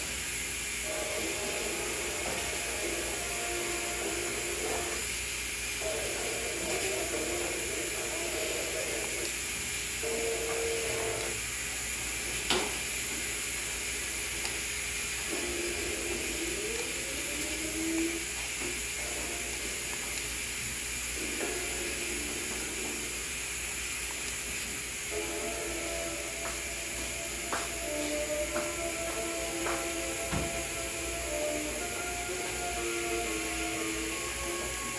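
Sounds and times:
steady hiss: 0.0s - 34.9s
film soundtrack from tv speakers: 0.8s - 5.1s, 5.8s - 9.3s, 15.2s - 20.2s, 21.2s - 23.3s, 25.1s - 34.9s.

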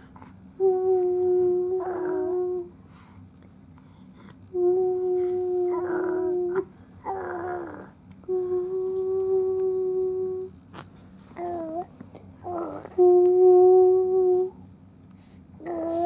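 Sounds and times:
long hummed notes: 0.0s - 2.8s, 4.5s - 10.5s, 12.4s - 14.7s
baby cooing: 1.7s - 2.6s, 5.2s - 8.0s, 11.4s - 13.2s, 15.6s - 16.0s.

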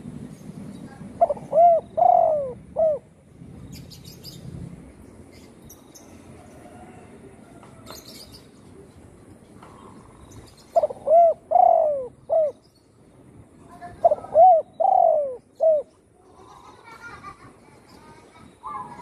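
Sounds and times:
dove cooing: 0.9s - 3.1s, 10.7s - 12.6s, 14.0s - 16.9s.

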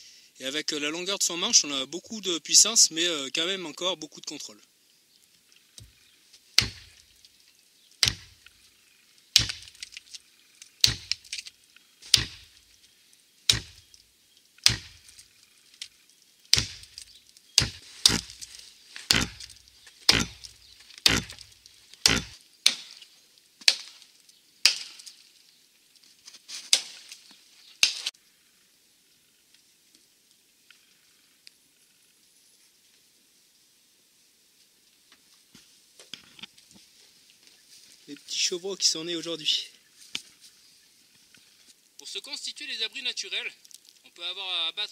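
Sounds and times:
axe chopping into tree trunk: 6.6s - 7.0s, 8.0s - 8.4s, 9.4s - 10.0s, 10.8s - 11.4s, 12.1s - 12.5s, 13.5s - 13.9s, 14.6s - 15.2s, 16.5s - 17.0s, 17.6s - 18.5s, 19.1s - 23.0s, 23.6s - 24.0s, 24.6s - 25.1s, 26.7s - 27.0s, 27.8s - 28.1s.

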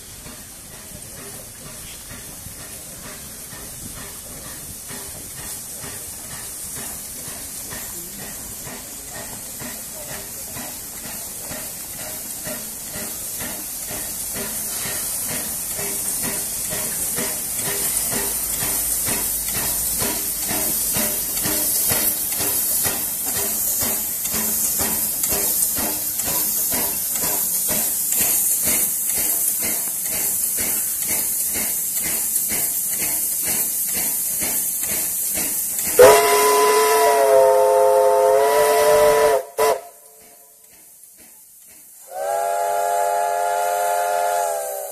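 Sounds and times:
steam locomotive hissing: 0.0s - 44.9s
steam whistle: 36.0s - 40.2s, 42.0s - 44.9s.

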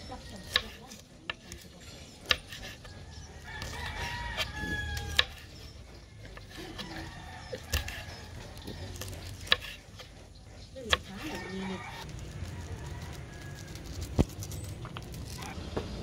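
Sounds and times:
rooster crowing: 3.0s - 5.5s, 6.6s - 8.4s, 11.2s - 14.1s.

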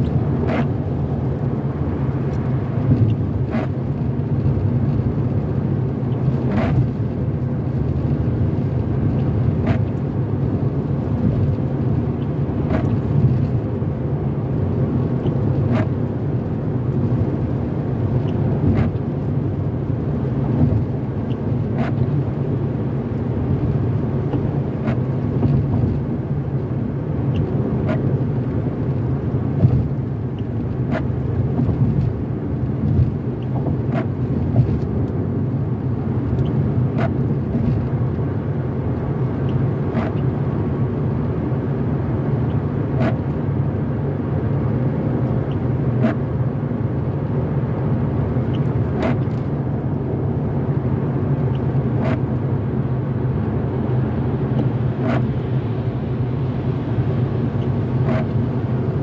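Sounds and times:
road and tyre noise: 0.0s - 59.0s
windshield wiper ticks: 2.3s - 5.4s, 6.0s - 7.1s, 7.8s - 10.6s, 11.2s - 13.6s, 14.9s - 16.0s, 17.0s - 19.4s, 20.4s - 22.2s, 23.6s - 26.0s, 27.2s - 28.2s, 29.6s - 35.2s, 36.2s - 38.2s, 39.0s - 40.3s, 42.4s - 43.4s, 45.2s - 46.2s, 48.3s - 49.9s, 51.4s - 52.3s, 54.5s - 55.4s, 57.5s - 58.6s.

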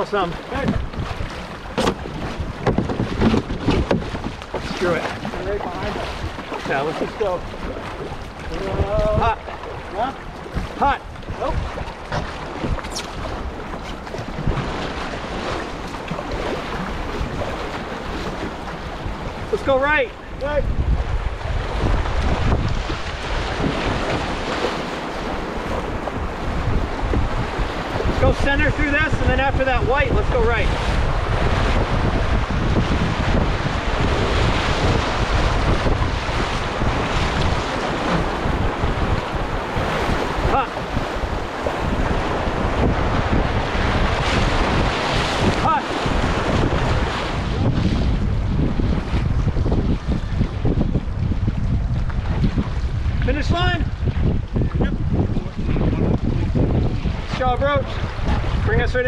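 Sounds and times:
wind buffeting microphone: 0.0s - 59.0s
whitewater rushing: 1.7s - 11.6s, 32.7s - 47.7s
sharp thump: 1.8s - 2.0s.

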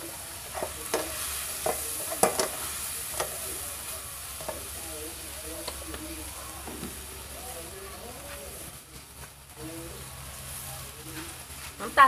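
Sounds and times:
food sizzling in a frying pan: 0.0s - 12.0s
spatula scraping and knocking a pan: 0.5s - 3.4s.

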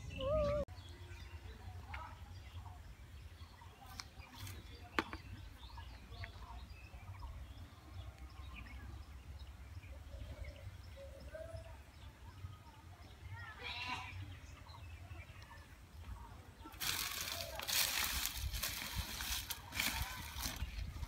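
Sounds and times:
faint bird chirps: 0.0s - 17.7s.

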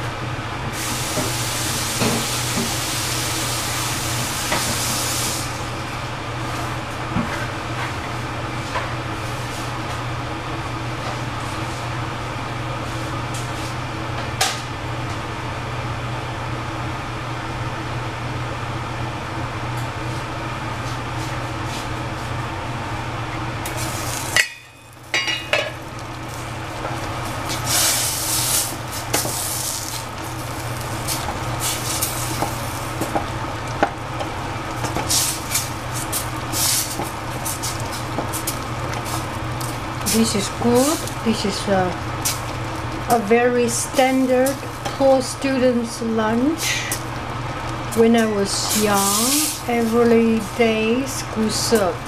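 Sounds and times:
steady low hum: 5.4s - 52.0s
dishes and utensils clattering: 24.4s - 25.8s.

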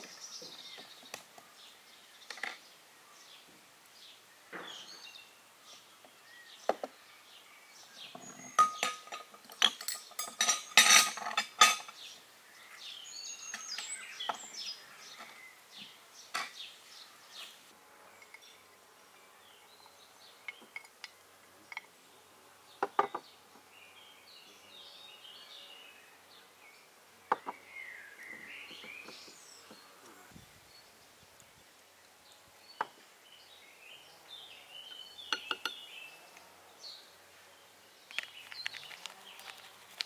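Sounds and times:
glass bowl and utensils clinking: 8.5s - 11.9s
packet rustling: 38.1s - 40.0s.

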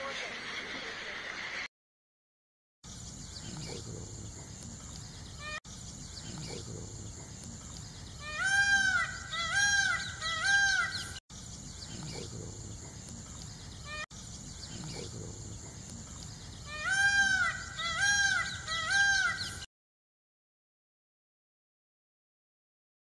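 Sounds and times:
peacock calls: 5.2s - 5.6s, 7.9s - 11.2s, 13.7s - 14.1s, 16.4s - 19.7s.

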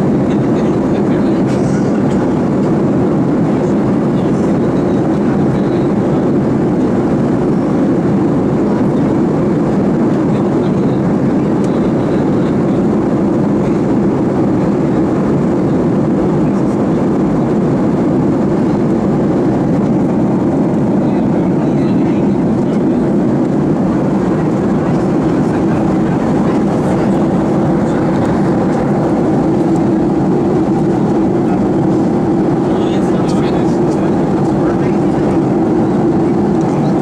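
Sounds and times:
airliner cabin engine rush: 0.0s - 37.0s.

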